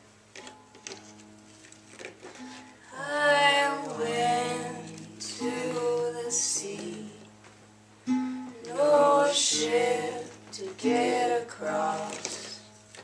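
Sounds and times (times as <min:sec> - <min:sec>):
soft musical accompaniment: 0:00.4 - 0:13.0
person singing: 0:02.9 - 0:07.3, 0:08.6 - 0:12.7.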